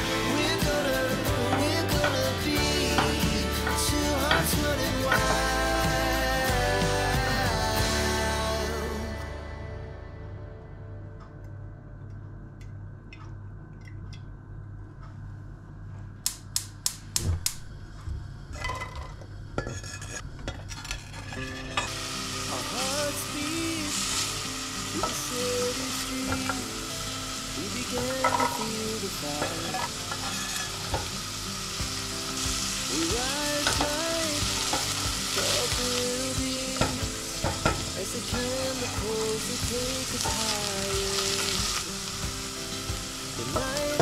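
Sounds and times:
vegetables sizzling in oil: 0.0 - 9.0, 20.7 - 44.0.

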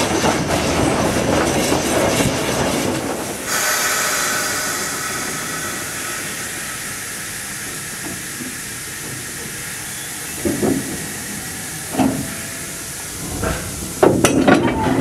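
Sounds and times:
steam locomotive hissing: 0.0 - 15.0.

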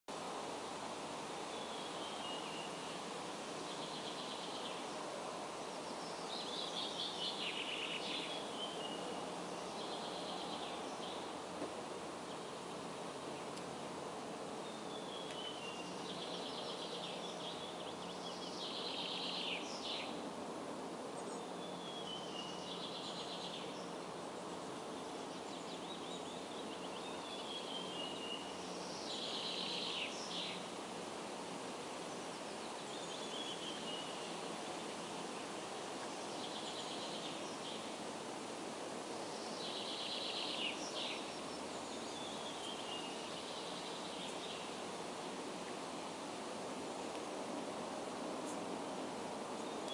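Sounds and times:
outdoor background hiss: 0.1 - 49.9
songbird singing: 1.4 - 20.3, 21.0 - 31.0, 31.6 - 49.9.

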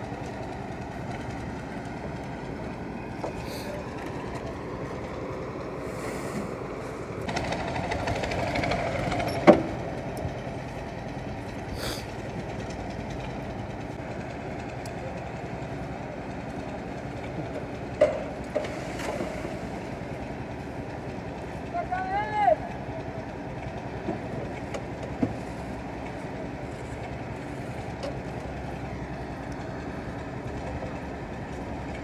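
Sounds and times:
concrete mixer running: 6.6 - 32.0.

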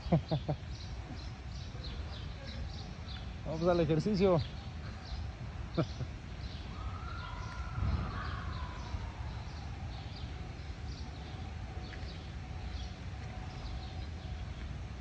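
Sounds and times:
birds chirping: 0.0 - 15.0
faint hum: 4.4 - 15.0
low rumble: 6.7 - 11.8.

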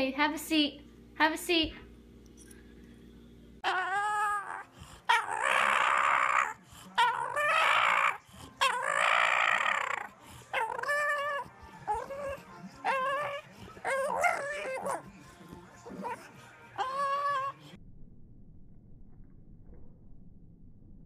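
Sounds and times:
dog whining and howling: 3.6 - 15.1, 15.8 - 17.8.

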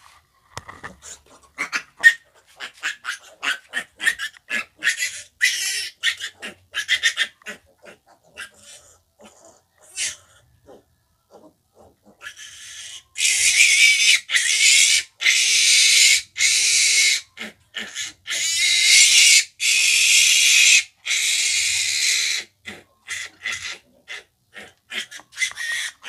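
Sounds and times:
piglet squealing: 1.0 - 10.8, 11.8 - 26.0.

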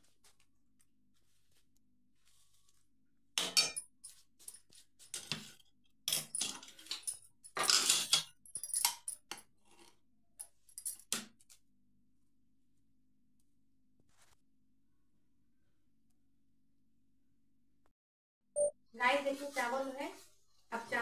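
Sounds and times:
steel utensils clinking and scraping: 6.1 - 9.1.

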